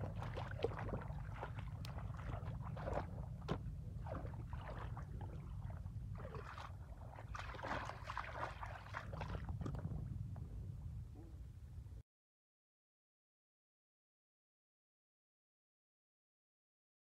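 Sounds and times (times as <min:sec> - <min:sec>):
feet wading through water: 0:00.0 - 0:10.0
steady low rumble: 0:00.0 - 0:12.0.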